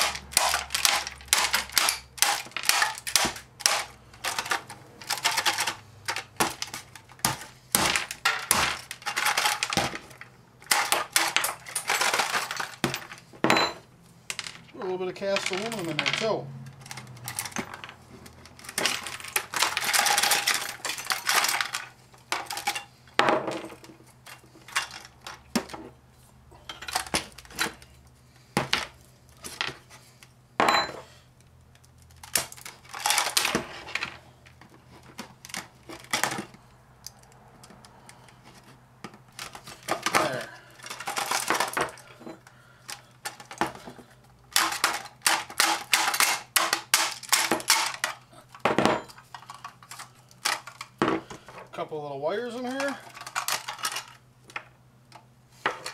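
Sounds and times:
pieces rattling and dropping: 0.0s - 14.7s, 15.3s - 25.9s, 32.1s - 36.6s, 39.3s - 42.4s, 43.2s - 51.4s, 52.7s - 54.7s
plastic and metal parts clattering: 0.0s - 26.0s, 26.6s - 31.0s, 31.7s - 51.8s, 52.5s - 55.9s.

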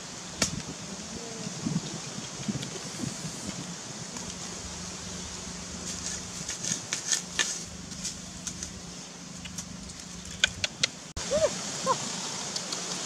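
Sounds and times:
dry leaves and twigs rustling: 0.0s - 10.8s
steady hiss: 0.0s - 13.0s
sharp clicks and crackles: 12.5s - 13.0s.

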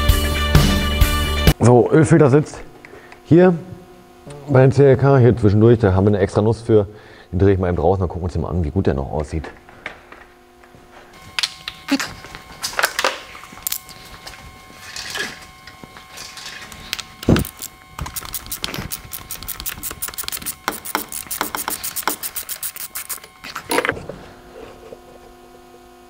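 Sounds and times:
rapid ratchet clicking: 17.4s - 23.2s
tool knocking: 20.6s - 22.2s.

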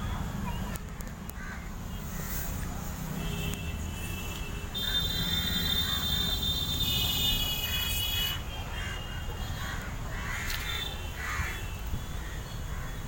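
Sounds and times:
crows cawing: 1.4s - 2.4s, 9.6s - 11.6s.

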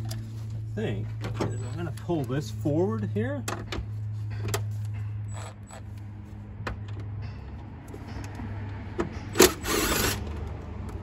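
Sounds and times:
impact driver whirring: 9.4s - 10.3s.

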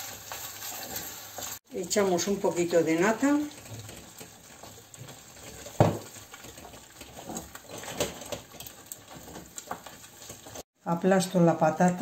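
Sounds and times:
wooden spoon scraping a saucepan: 0.0s - 10.7s
spoon knocking on pan: 5.0s - 6.8s.

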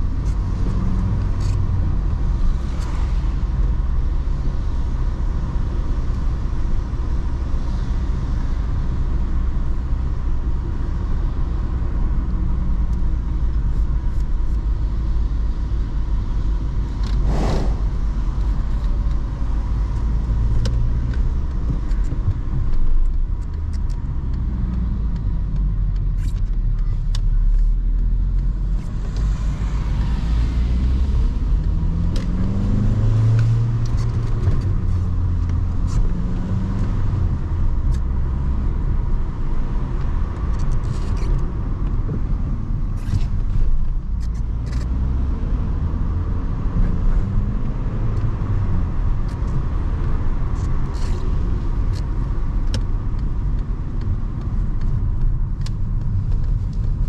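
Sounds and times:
tyre and road rumble: 0.0s - 57.0s
short noisy rush: 17.1s - 18.4s.

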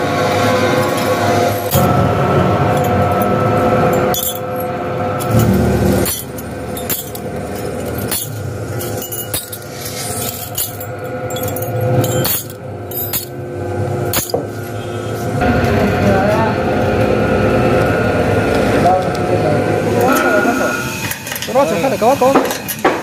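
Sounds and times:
metal clinking and knocking: 3.9s - 13.4s, 14.0s - 14.5s.

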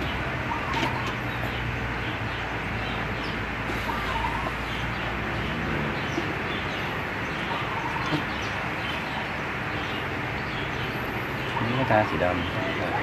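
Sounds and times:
faint animal calls: 3.7s - 5.0s, 7.3s - 9.3s, 11.4s - 13.0s.

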